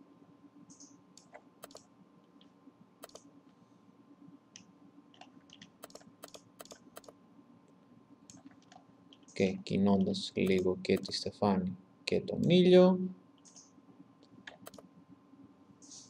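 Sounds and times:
faint electrical hum: 0.0s - 16.0s
mouse and keyboard clicks: 0.7s - 1.9s, 3.0s - 3.3s, 4.6s - 7.2s, 8.3s - 11.2s, 14.4s - 14.9s.

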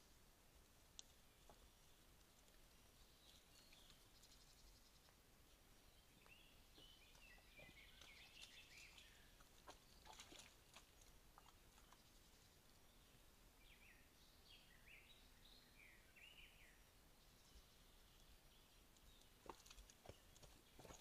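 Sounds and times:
birds chirping: 1.0s - 21.0s.

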